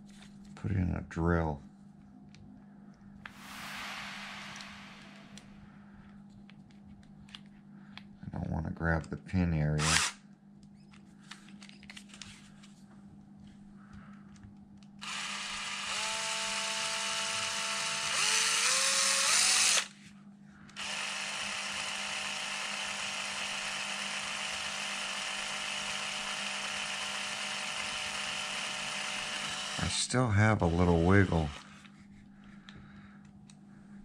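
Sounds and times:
cordless drill whining: 9.8s - 10.2s, 15.0s - 19.9s, 20.8s - 30.0s, 30.6s - 31.9s.

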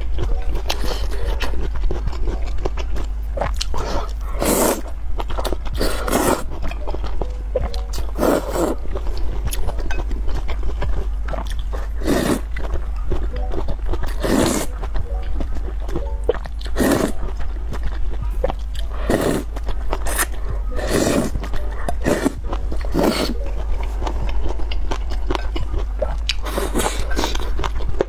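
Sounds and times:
chewing: 0.0s - 28.0s
slurping noodles: 3.8s - 4.9s, 5.8s - 6.4s, 8.2s - 8.8s, 11.4s - 12.5s, 14.1s - 14.7s, 16.6s - 17.3s, 18.9s - 21.4s, 22.0s - 23.4s, 26.4s - 27.4s.

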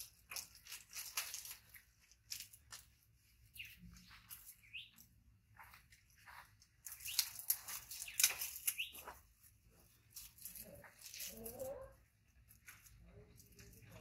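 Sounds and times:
plastic wrapping crinkling and tearing: 0.0s - 3.0s, 6.9s - 9.2s.

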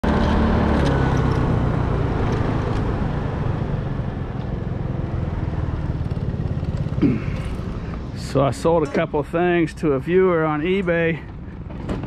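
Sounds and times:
motorcycle engine running: 0.0s - 8.4s.

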